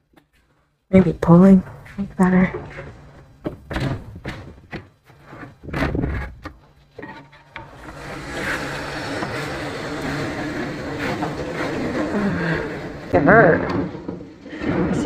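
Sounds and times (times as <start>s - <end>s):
furniture scraping on tile floor: 1.0s - 15.0s
wooden furniture knocks: 3.4s - 5.0s.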